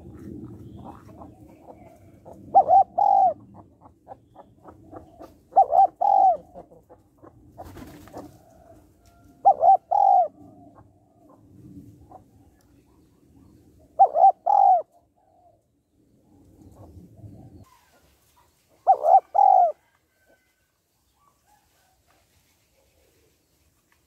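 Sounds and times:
dove cooing: 0:00.0 - 0:15.6, 0:18.8 - 0:20.2.

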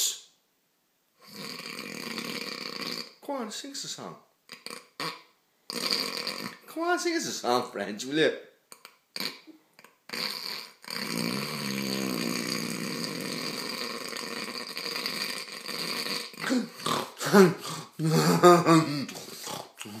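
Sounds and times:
man snoring: 0:01.3 - 0:03.2, 0:05.7 - 0:06.6, 0:10.1 - 0:20.0
snorts and grunts: 0:10.1 - 0:20.0.

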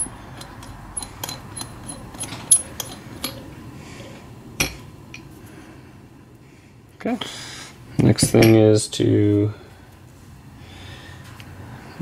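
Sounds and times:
metallic clicks of small parts: 0:00.0 - 0:03.4.

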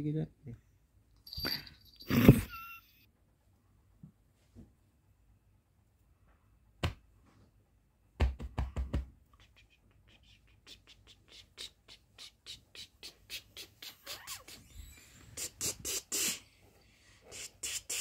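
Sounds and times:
fingers tapping on pillow: 0:06.8 - 0:07.0, 0:08.2 - 0:09.3.

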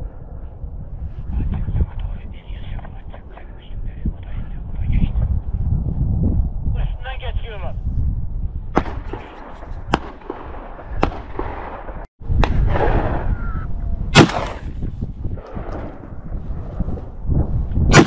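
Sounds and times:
wind rumble on microphone: 0:00.0 - 0:18.0
gunshots echoing: 0:08.8 - 0:13.2, 0:14.1 - 0:14.7.

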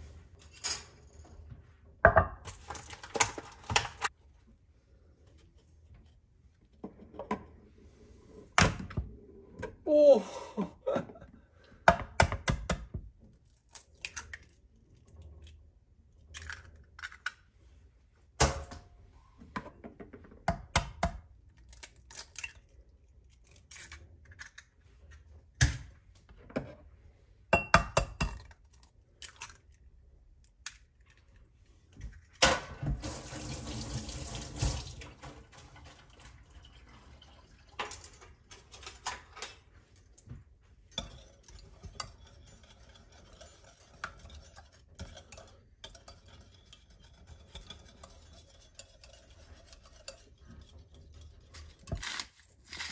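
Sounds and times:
sink tap running: 0:33.0 - 0:35.0.

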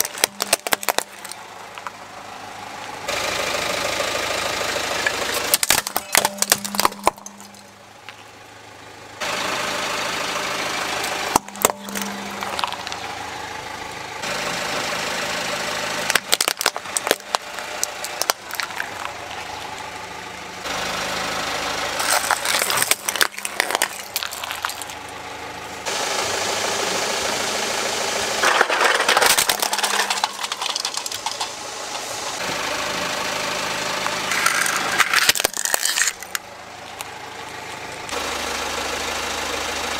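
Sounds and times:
plastic toys cracking and snapping: 0:00.0 - 0:01.9, 0:05.3 - 0:07.7, 0:11.0 - 0:13.0, 0:16.1 - 0:19.4, 0:22.0 - 0:25.1, 0:28.4 - 0:32.0, 0:34.0 - 0:37.1
car engine running: 0:00.0 - 0:39.9.

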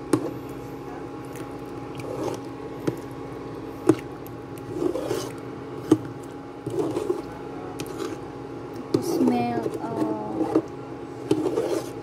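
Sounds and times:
steady hum: 0:00.0 - 0:12.0
soft squishes in sauce: 0:00.2 - 0:09.0.

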